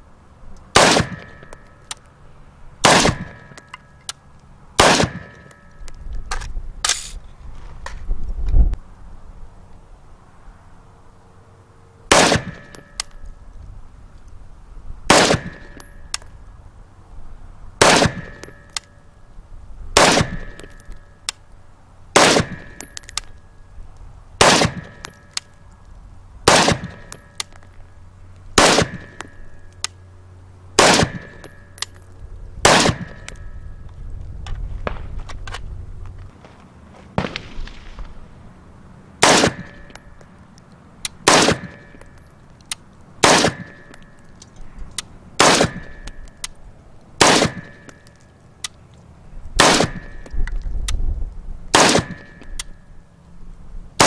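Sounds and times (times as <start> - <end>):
rifle single shots: 0.7 - 1.5, 2.8 - 3.6, 4.8 - 5.5, 12.1 - 12.8, 15.1 - 15.9, 17.8 - 18.6, 20.0 - 20.8, 22.2 - 23.0, 24.4 - 25.2, 26.4 - 27.5, 28.6 - 29.3, 30.8 - 31.5, 32.6 - 33.4, 37.2 - 38.0, 39.2 - 40.0, 41.2 - 42.0, 43.2 - 44.0, 45.4 - 46.2, 47.2 - 48.0, 49.6 - 50.3, 51.7 - 52.4
thin ringing: 1.2 - 2.1, 5.2 - 6.1, 12.6 - 13.4, 20.4 - 21.3, 26.9 - 27.7, 29.0 - 30.1, 31.2 - 32.3, 39.7 - 40.5, 43.6 - 44.8, 45.8 - 46.7.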